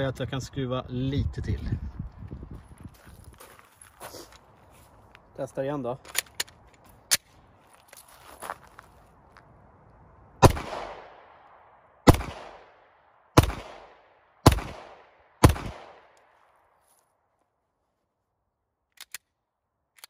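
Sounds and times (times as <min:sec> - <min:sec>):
gun handling clicks: 0:06.0 - 0:07.3, 0:18.9 - 0:20.0
pistol shots with echo: 0:10.4 - 0:16.2.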